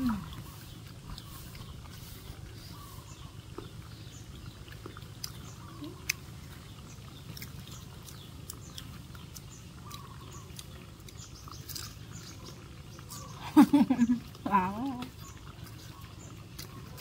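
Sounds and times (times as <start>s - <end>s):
steady low hum: 0.0s - 17.0s
monkey chewing wet smacks: 15.0s - 17.0s.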